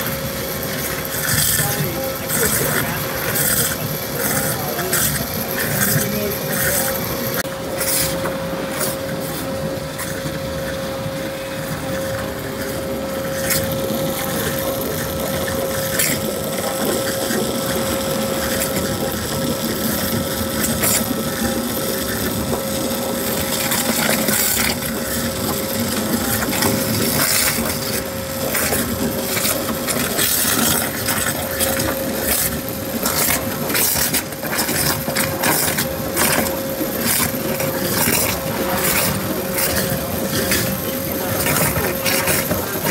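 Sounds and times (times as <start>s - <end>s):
waterjet cutter hissing: 0.0s - 42.9s
crackles and clicks: 12.0s - 42.9s.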